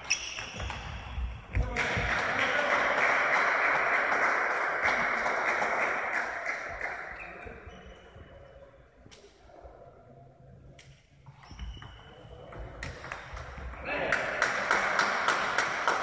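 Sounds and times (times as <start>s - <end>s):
applause in a hall: 1.7s - 7.2s, 14.0s - 16.0s
table tennis ball bouncing: 11.4s - 14.6s.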